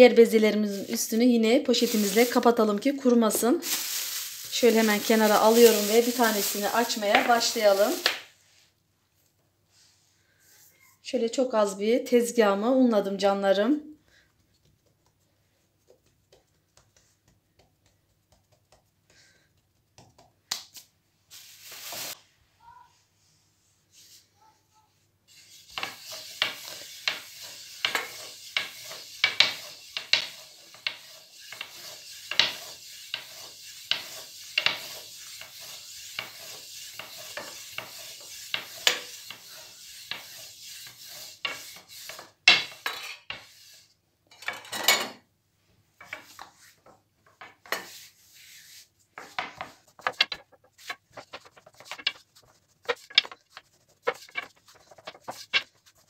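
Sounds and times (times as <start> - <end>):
rolling pin rolling dough: 0.0 - 3.4, 4.4 - 8.2, 14.4 - 20.4, 25.3 - 43.9, 46.0 - 56.0.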